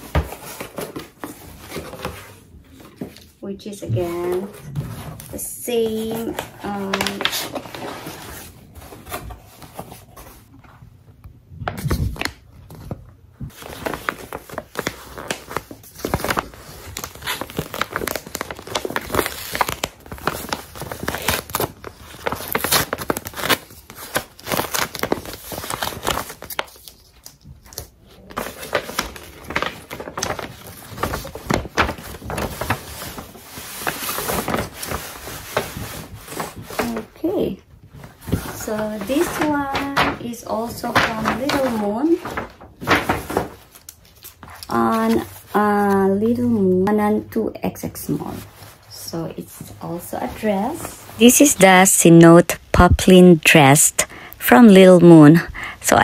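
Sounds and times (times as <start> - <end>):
paper packaging rustling and tearing: 4.2 - 10.6, 11.7 - 46.2.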